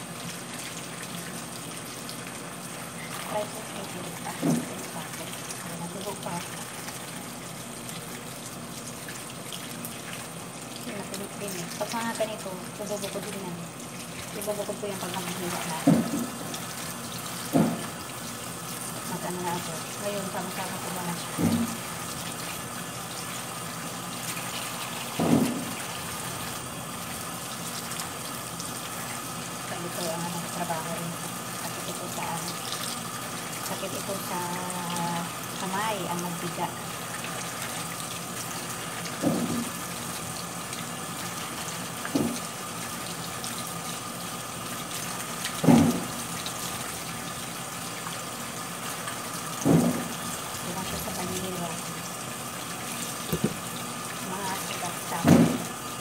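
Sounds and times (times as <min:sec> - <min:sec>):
tap water running: 0:00.0 - 0:56.0
fruit thudding in sink: 0:04.3 - 0:04.8, 0:15.8 - 0:16.4, 0:17.5 - 0:18.0, 0:21.3 - 0:21.8, 0:25.1 - 0:25.8, 0:39.2 - 0:39.7, 0:42.1 - 0:42.5, 0:45.6 - 0:46.2, 0:49.6 - 0:50.2, 0:53.2 - 0:53.7, 0:55.2 - 0:55.7.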